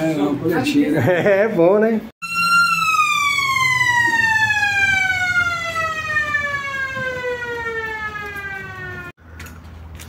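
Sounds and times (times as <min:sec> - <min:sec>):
siren winding down: 0:02.2 - 0:09.2.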